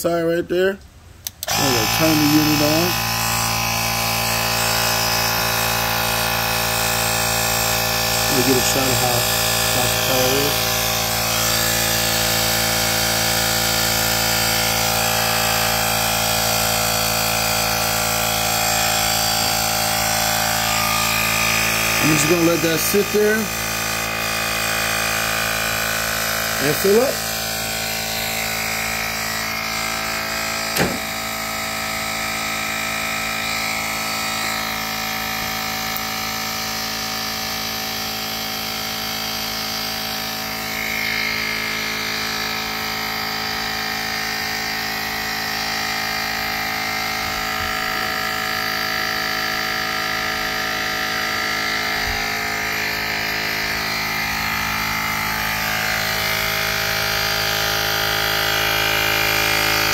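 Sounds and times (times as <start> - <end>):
air compressor pump humming: 0.0 - 59.9
brief knock: 30.8 - 31.1.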